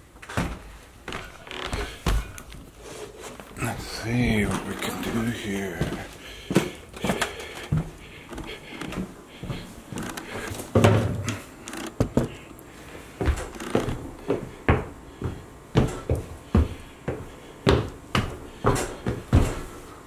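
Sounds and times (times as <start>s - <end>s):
footsteps on tile floor: 0.2s - 20.0s.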